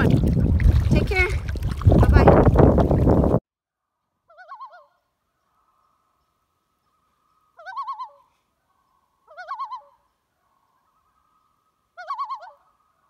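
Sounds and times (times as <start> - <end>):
bird-like warbling call: 4.3 - 5.0, 6.9 - 8.3, 9.3 - 13.0.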